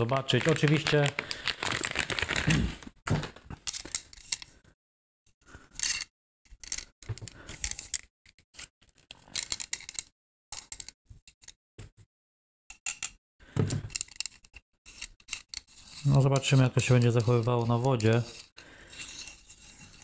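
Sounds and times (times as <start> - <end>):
plastic rustling and clicks: 0.0 - 4.4.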